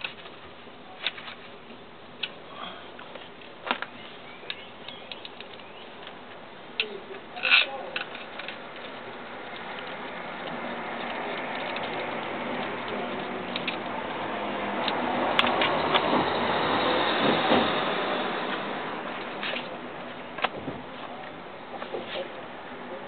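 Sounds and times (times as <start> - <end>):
sharp clicks: 3.4 - 6.2.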